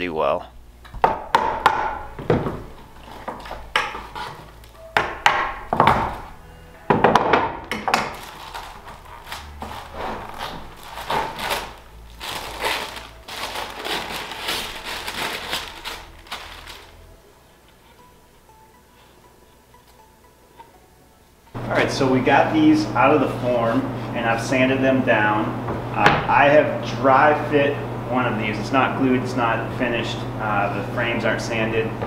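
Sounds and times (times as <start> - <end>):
hand tool knocking on wood: 0.9 - 4.3, 4.9 - 6.3
plastic sheet crinkling: 8.0 - 17.1.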